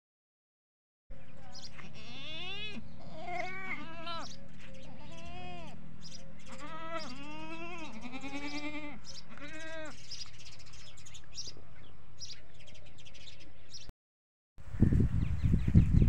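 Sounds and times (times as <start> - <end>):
goats bleating: 1.7 - 5.8, 6.4 - 10.0.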